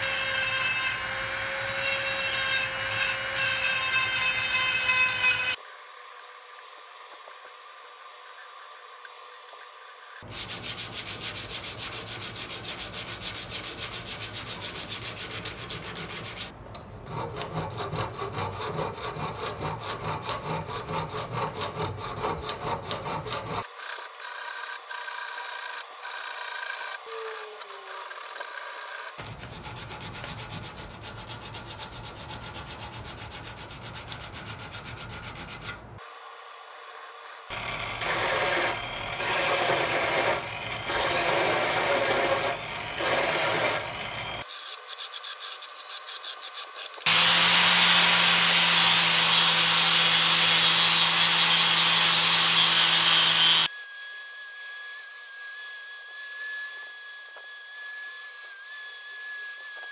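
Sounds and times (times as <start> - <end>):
hand file rasping on metal: 0.0 - 5.6, 10.2 - 24.4, 29.2 - 35.9, 37.5 - 53.7
rotary tool whining: 37.2 - 53.7.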